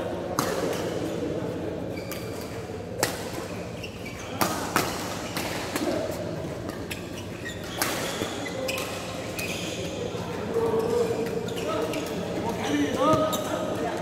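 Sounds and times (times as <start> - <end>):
shoes squeaking on court: 1.9 - 14.0
racket hitting shuttlecock: 3.0 - 3.5.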